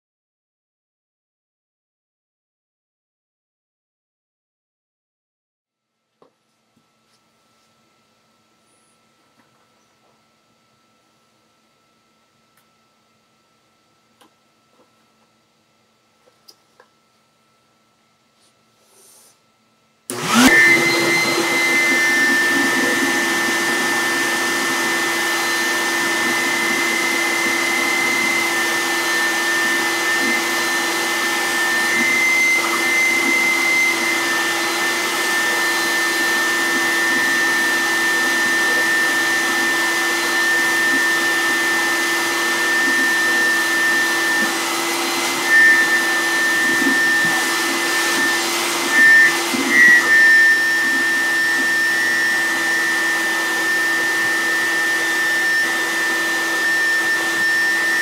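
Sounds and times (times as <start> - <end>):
shop vacuum motor whining: 20.1 - 58.0.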